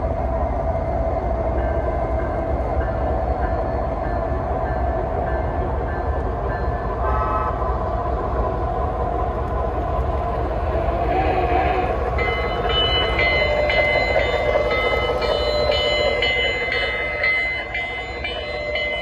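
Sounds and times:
locomotive bell ringing: 1.4s - 7.5s, 11.7s - 19.0s
model train wheels on track: 1.5s - 19.0s
short train whistle blast: 7.0s - 7.6s.

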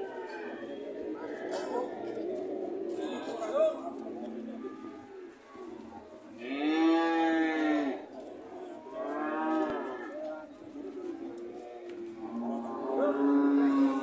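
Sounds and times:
cow mooing: 12.2s - 14.0s.

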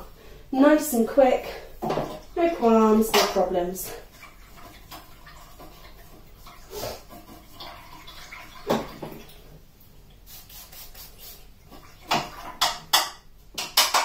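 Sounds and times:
brush swishing in water pot: 10.2s - 12.0s
knocks against pot and tins: 12.1s - 14.0s.

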